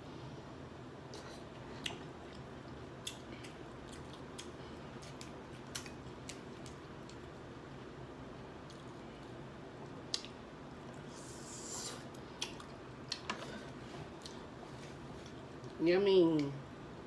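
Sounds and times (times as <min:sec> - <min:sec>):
wet eating sounds: 0:01.1 - 0:07.4.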